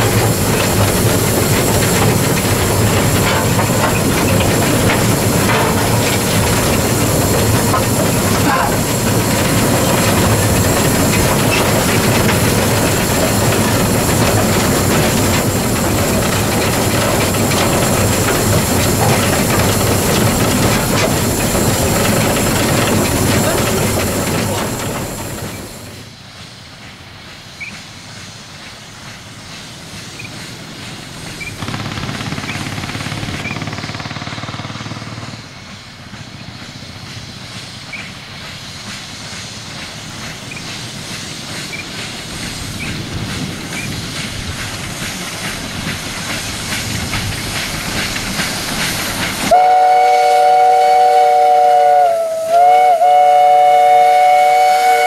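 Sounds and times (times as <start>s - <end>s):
steam locomotive rumbling: 0.0s - 55.0s
steam whistle blast: 49.5s - 55.0s.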